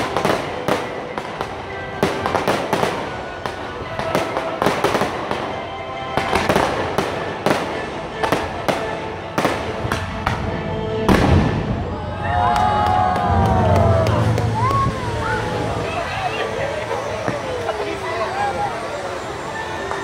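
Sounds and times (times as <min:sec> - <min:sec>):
fireworks popping and banging: 0:00.0 - 0:11.8
music playing: 0:00.0 - 0:20.0.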